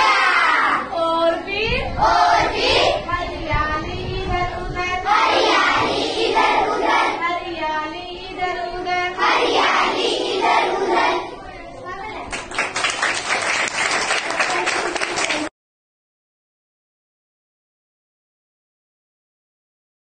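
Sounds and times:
children singing in unison: 0.0s - 0.9s, 1.9s - 3.4s, 5.0s - 7.6s, 8.2s - 11.4s.

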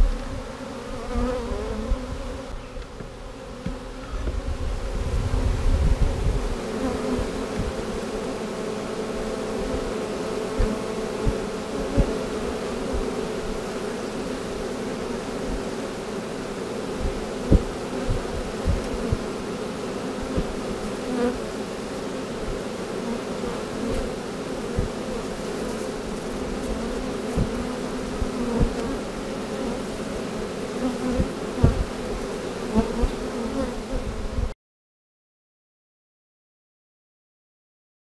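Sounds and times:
bees buzzing: 0.0s - 34.5s
thumps against microphone: 7.2s - 7.8s, 17.0s - 19.2s, 20.3s - 20.6s, 24.8s - 25.0s, 27.3s - 27.6s, 28.2s - 28.9s, 31.2s - 32.0s.

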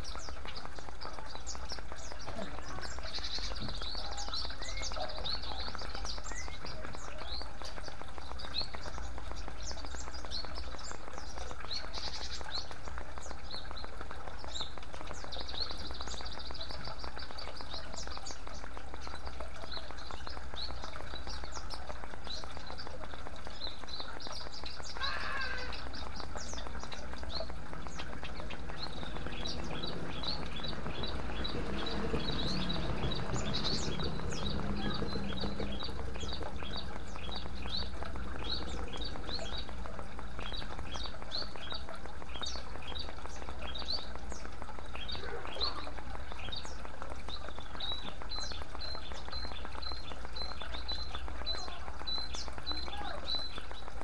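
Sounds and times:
small birds chirping: 0.0s - 54.0s
water trickling and splashing: 0.0s - 54.0s
lower bird call: 24.7s - 39.8s.

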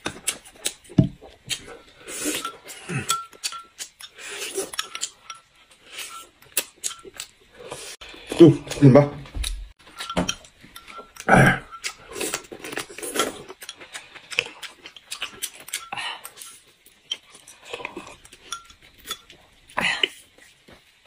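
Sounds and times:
chewing and smacking: 0.0s - 5.5s, 9.4s - 20.5s
utensil clinking glass bowl: 1.8s - 3.8s, 4.7s - 7.2s, 9.8s - 12.0s, 17.4s - 19.4s.

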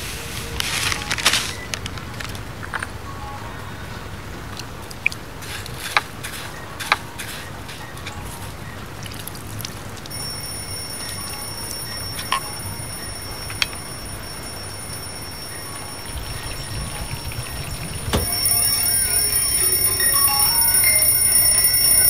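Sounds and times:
alarm ringing high-pitched: 10.1s - 22.0s.

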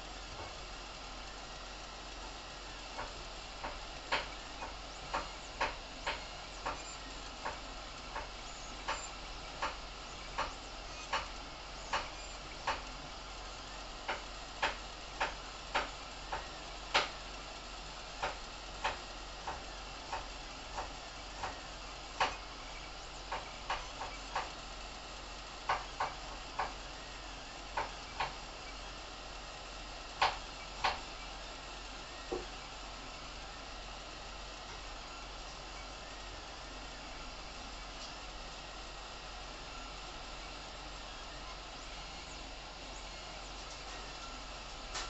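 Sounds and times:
printer motors and fans whirring: 0.0s - 45.0s
print head clicks: 2.1s - 29.0s, 30.1s - 32.7s.

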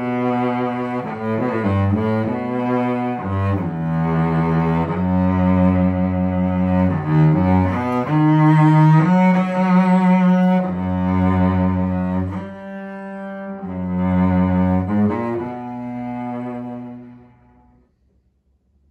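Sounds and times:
cello bowed in sustained notes: 0.0s - 17.9s.

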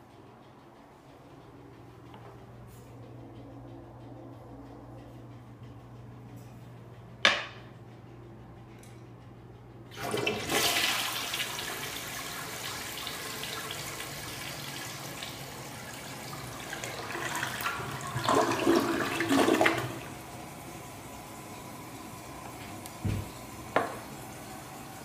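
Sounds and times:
toilet flushing: 9.9s - 25.0s.

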